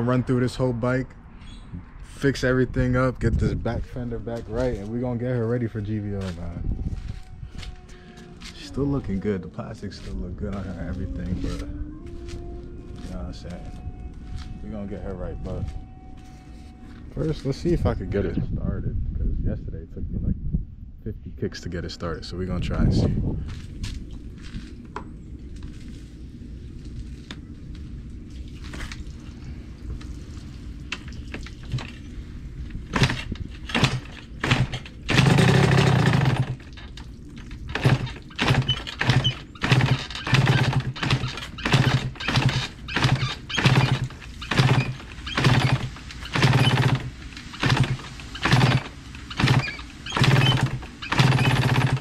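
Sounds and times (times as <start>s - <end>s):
engine sputtering: 32.8s - 52.0s
dirt bike kick-start: 32.9s - 37.0s, 37.7s - 52.0s.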